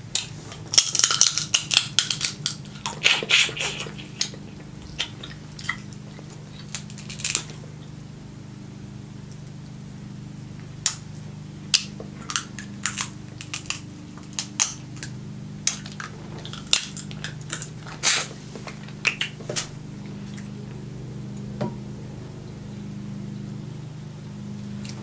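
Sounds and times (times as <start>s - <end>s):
low hum: 0.0s - 25.0s
crab shells cracking: 0.1s - 7.6s, 11.7s - 19.7s.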